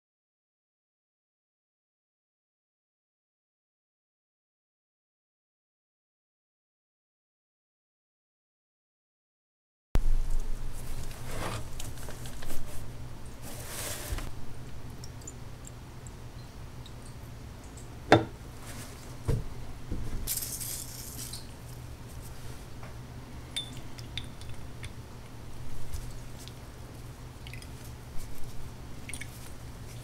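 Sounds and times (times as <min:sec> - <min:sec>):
metal parts clinking on glass jar: 0:20.3 - 0:21.4.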